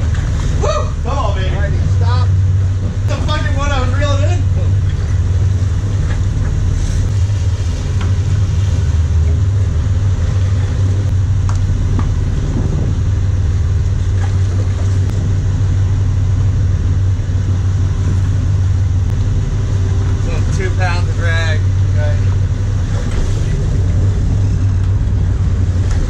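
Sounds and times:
boat engines droning: 0.0 - 26.0
water rushing past hull: 0.0 - 26.0.

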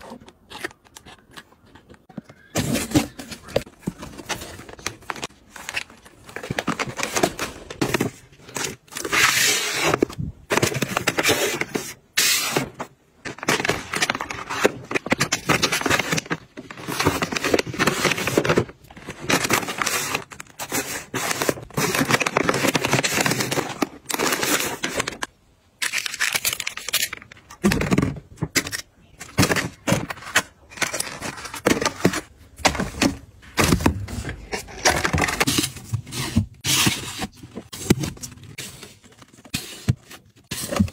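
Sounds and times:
plastic packaging crinkling: 13.2 - 28.3.

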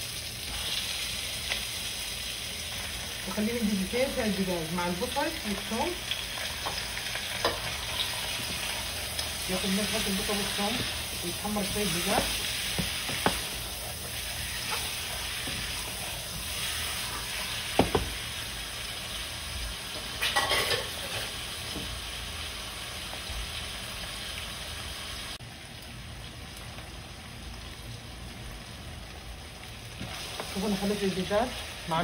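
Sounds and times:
food sizzling in a pot: 0.0 - 32.0
wooden spoon knocking pot: 17.8 - 18.1.

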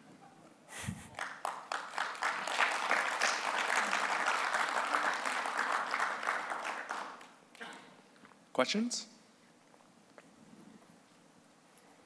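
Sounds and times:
audience applauding: 1.1 - 7.4.

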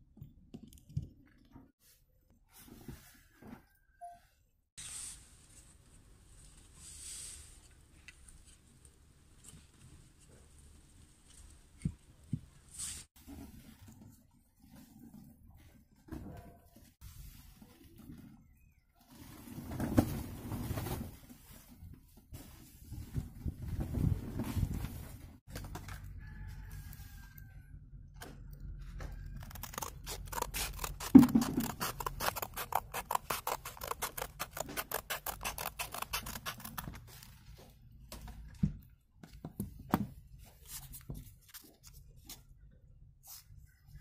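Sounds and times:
scissors cutting sandpaper: 29.4 - 37.0.

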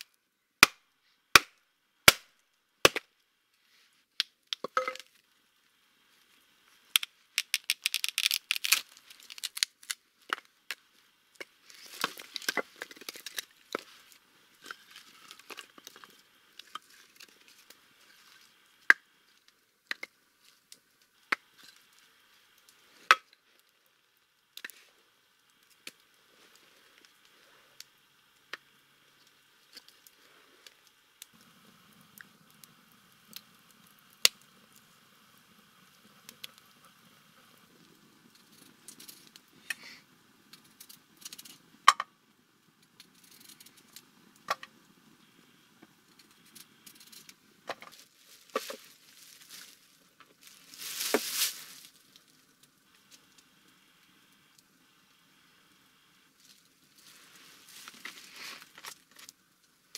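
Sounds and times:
campfire crackling and popping: 0.0 - 3.3, 4.1 - 59.9
kindling tearing and crinkling: 7.0 - 10.8, 11.6 - 18.5, 46.2 - 52.3.

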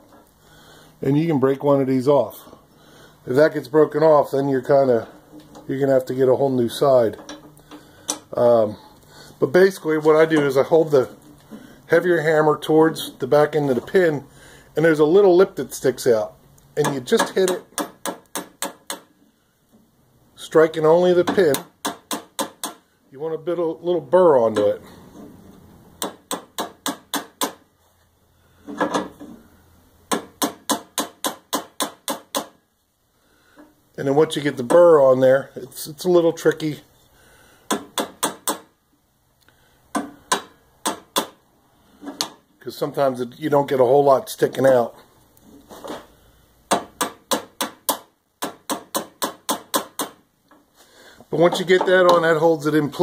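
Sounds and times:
hammer tapping metal pin: 16.8 - 19.1.

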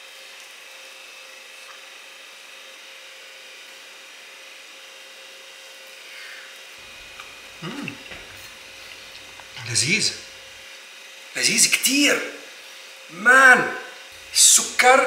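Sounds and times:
thin constant hum: 6.8 - 11.9, 12.6 - 15.0.

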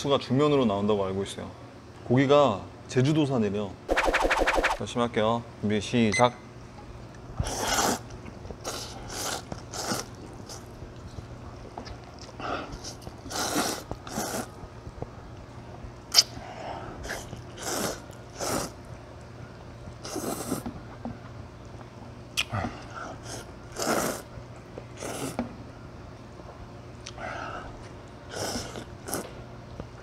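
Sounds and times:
person slurping noodles: 7.4 - 8.0, 8.6 - 10.6, 12.8 - 14.5, 17.0 - 18.8, 20.0 - 20.7, 23.2 - 24.3, 25.0 - 25.4, 28.3 - 29.3
chewing: 7.8 - 14.5.

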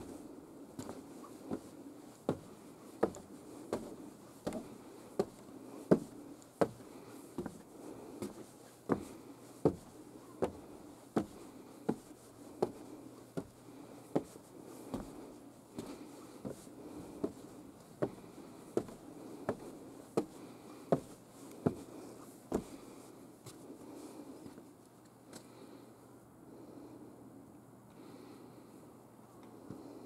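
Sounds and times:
footsteps on wooden stairs: 2.3 - 7.6, 8.2 - 12.0, 13.4 - 15.2, 15.8 - 22.8.

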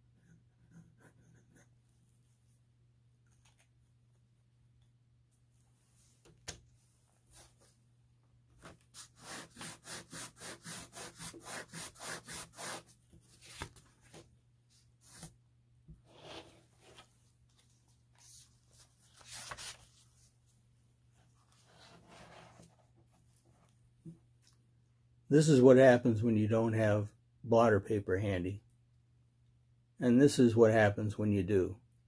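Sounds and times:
blotter paper rubbing on paper: 9.0 - 12.9
paper handling: 13.3 - 14.3, 16.9 - 20.2.

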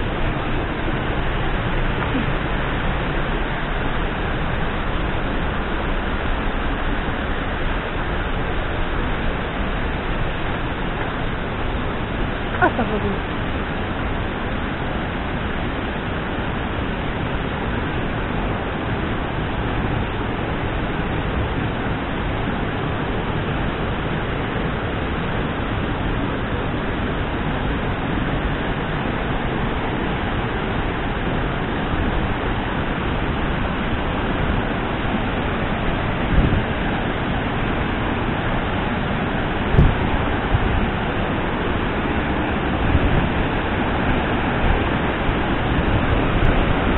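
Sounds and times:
waterfall roaring: 0.0 - 46.9
low thump: 39.7 - 40.0.

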